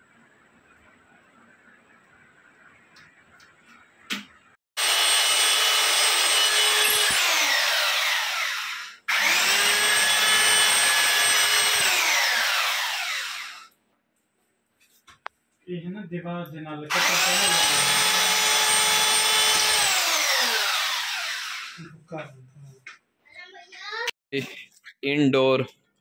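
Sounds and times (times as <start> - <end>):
electric drill whining: 4.8 - 13.7, 16.9 - 21.8.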